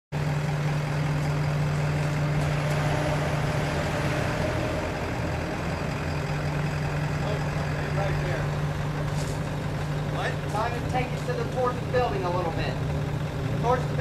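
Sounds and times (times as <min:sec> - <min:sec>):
machine humming: 0:00.2 - 0:14.0.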